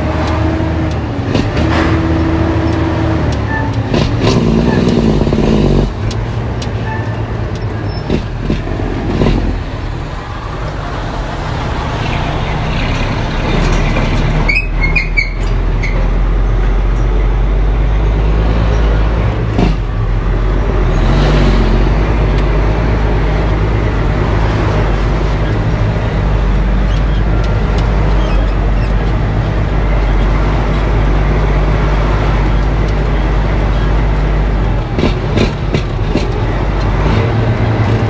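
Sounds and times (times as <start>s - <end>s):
truck diesel engine running: 0.0s - 38.0s
high squeaks: 3.4s - 3.9s, 13.6s - 16.2s, 26.8s - 30.4s.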